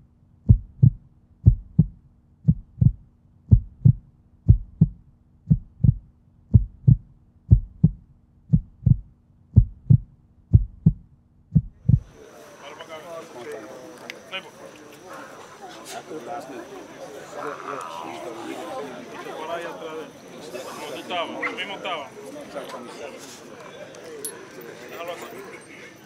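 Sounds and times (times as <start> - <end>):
heartbeat thumps: 0.0 - 12.2.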